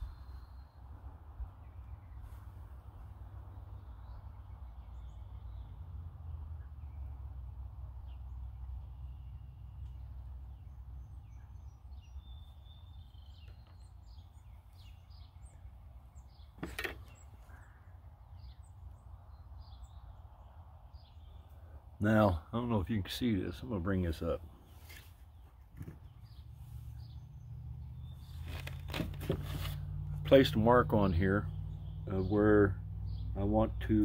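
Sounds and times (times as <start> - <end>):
faint bird chirps: 0.0 - 7.3, 8.0 - 22.5.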